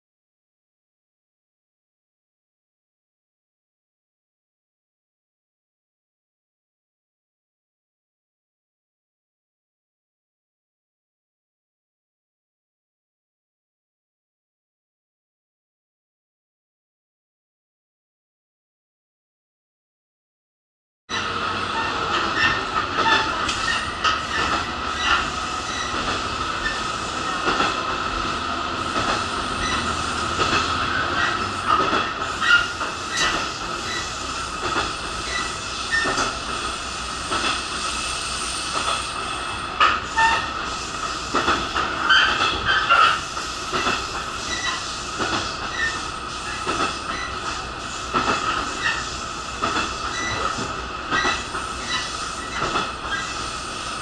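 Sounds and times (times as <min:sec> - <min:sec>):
wheels clacking over rail joints: 0:21.1 - 0:36.6, 0:39.7 - 0:53.4
railcar rumble: 0:21.1 - 0:54.0.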